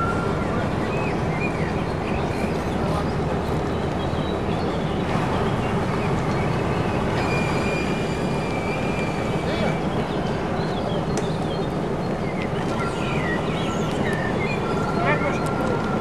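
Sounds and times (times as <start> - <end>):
diesel engines running: 0.0 - 16.0.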